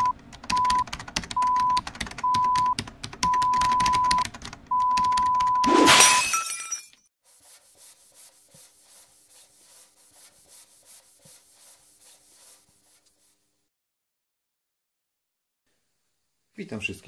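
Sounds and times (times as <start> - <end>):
brush scratching on paper: 7.2 - 13.6.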